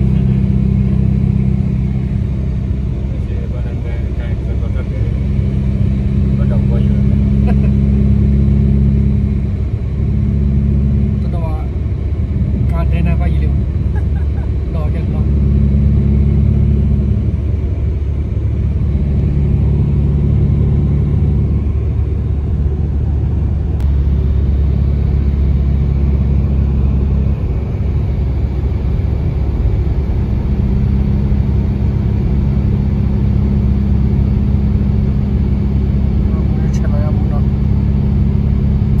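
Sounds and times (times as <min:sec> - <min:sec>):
car engine and tyre hum: 0:00.0 - 0:39.0.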